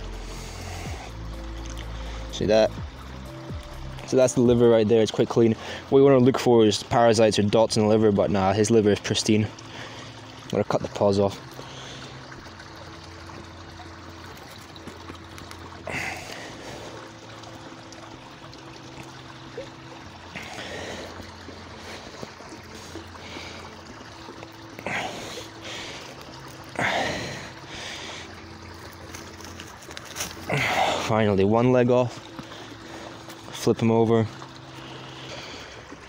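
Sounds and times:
heavy breaths: 15.8s - 17.2s, 20.3s - 23.8s, 24.7s - 28.4s.

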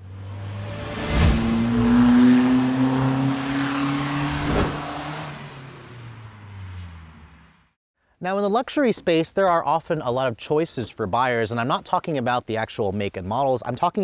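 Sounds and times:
car engine revving: 0.0s - 7.7s
rushing whoosh: 0.3s - 5.5s.

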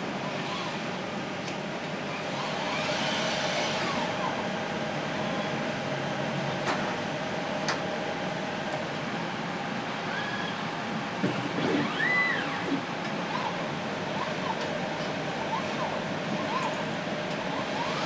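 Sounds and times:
equipment hum: 0.0s - 18.0s
robotic arm motors whining: 11.2s - 13.5s.

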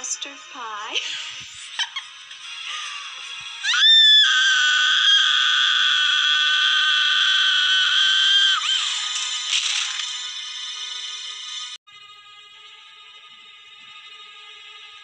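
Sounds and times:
horror film music: 0.0s - 15.0s
woman screaming: 3.7s - 8.8s.

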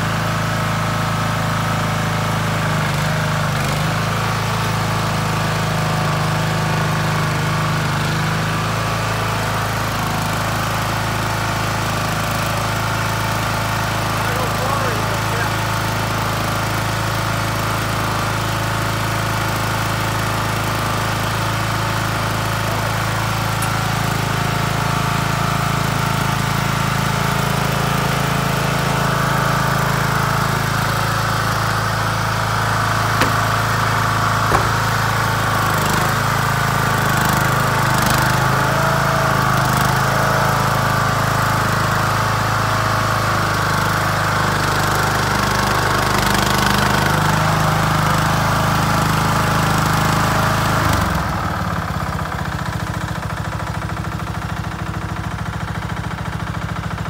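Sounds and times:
lawn mower engine running: 0.0s - 57.0s
short sharp knocks: 33.1s - 33.8s, 34.4s - 35.1s.

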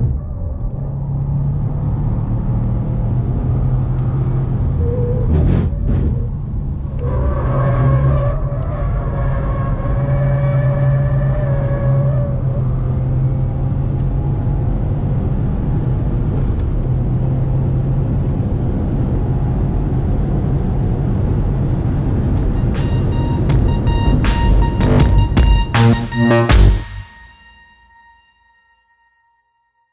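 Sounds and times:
road and wind noise: 0.0s - 25.6s
car engine accelerating hard: 0.0s - 25.9s.

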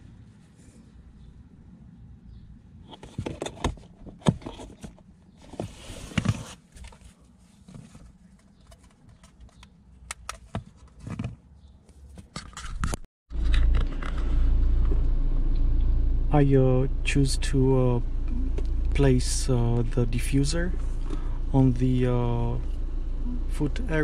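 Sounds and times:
hands handling plastic parts: 2.9s - 14.2s
car engine running: 13.3s - 24.0s.

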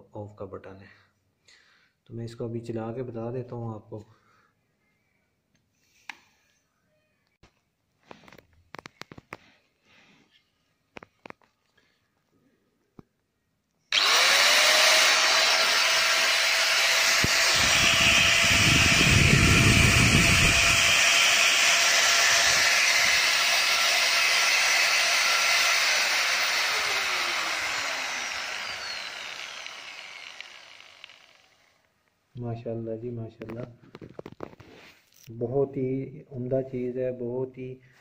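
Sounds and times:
angle grinder whining: 13.9s - 31.9s.

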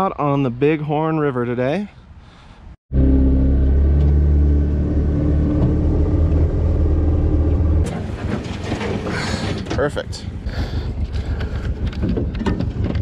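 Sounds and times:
boat engine droning: 2.9s - 8.2s.

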